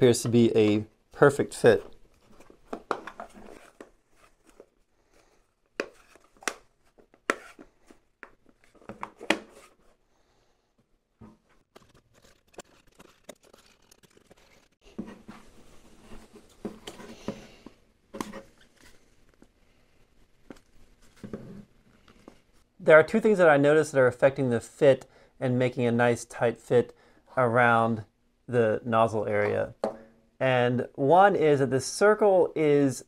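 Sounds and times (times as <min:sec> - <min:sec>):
plastic scraping and rustling: 0:01.8 - 0:09.9, 0:11.5 - 0:17.4.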